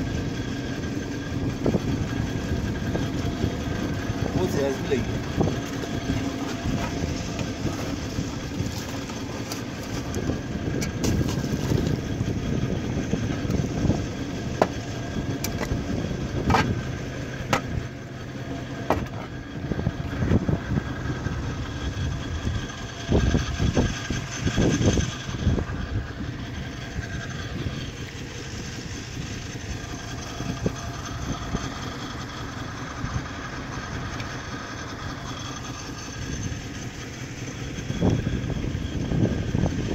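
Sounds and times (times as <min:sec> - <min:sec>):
drilling rig engine drone: 0:00.0 - 0:39.9
wind gusts on microphone: 0:00.9 - 0:17.1, 0:19.6 - 0:27.8, 0:37.7 - 0:39.9.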